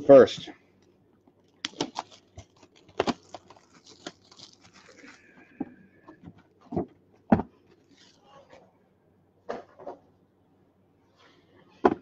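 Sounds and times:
plastic wrap crinkling: 1.4 - 6.2, 7.6 - 8.6.

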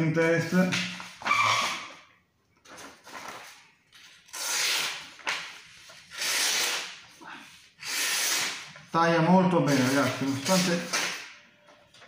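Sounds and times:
knife slicing paper: 9.7 - 11.3.

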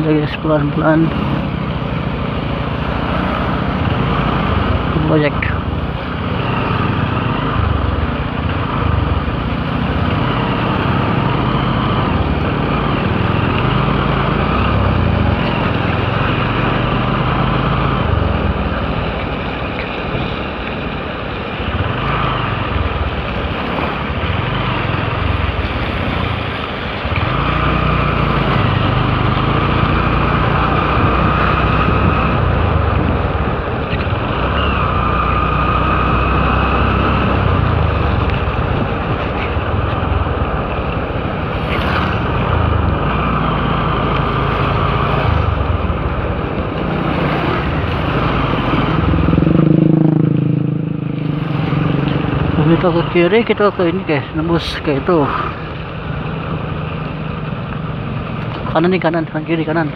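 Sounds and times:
motorcycle engine revving: 0.0 - 59.9
wind rushing on microphone: 28.5 - 53.2.

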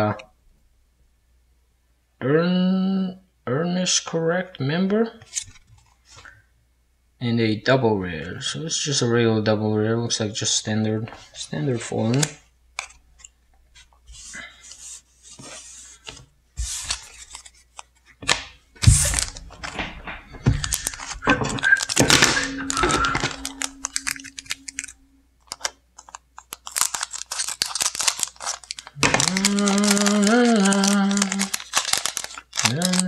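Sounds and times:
foil crinkling: 18.8 - 24.8, 25.5 - 33.0
clicks and knocks: 18.8 - 25.1
foil tearing: 26.4 - 33.0
person humming: 29.0 - 31.5.

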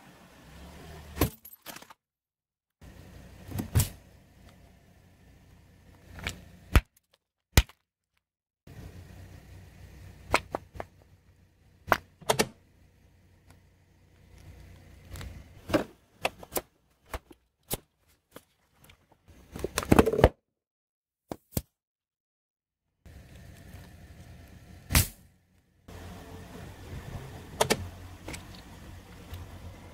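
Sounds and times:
car low rumble: 2.8 - 6.7, 8.7 - 16.2, 23.1 - 29.9.

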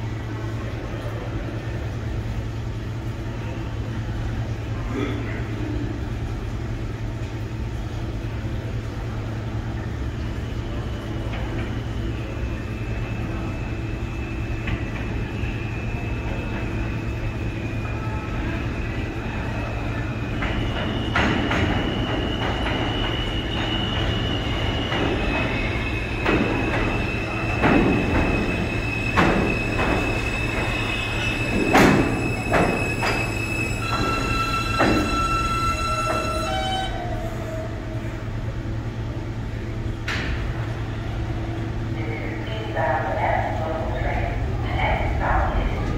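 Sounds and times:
subway train rumbling: 0.0 - 45.9
high steady squeal: 10.6 - 37.8.

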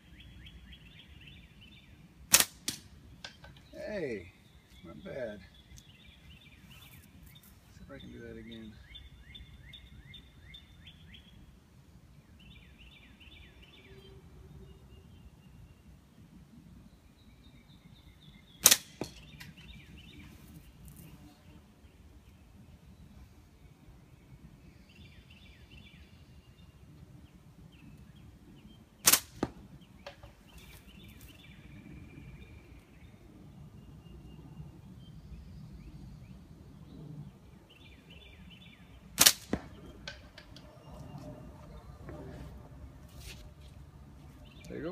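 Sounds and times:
songbird singing: 0.0 - 44.9
slingshot bands snapping: 29.0 - 29.5.

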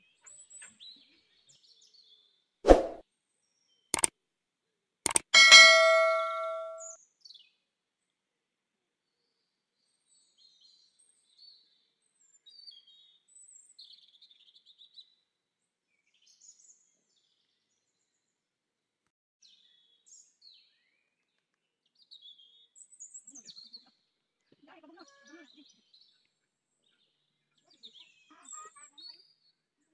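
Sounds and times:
small birds chirping: 21.9 - 24.1, 25.0 - 29.9.

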